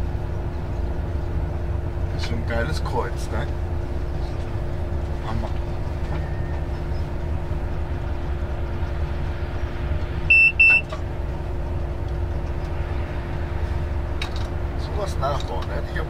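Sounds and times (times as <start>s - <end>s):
constant hum: 0.0s - 16.0s
train rumble in cab: 0.0s - 16.0s
high-pitched electronic beeps: 10.3s - 10.9s.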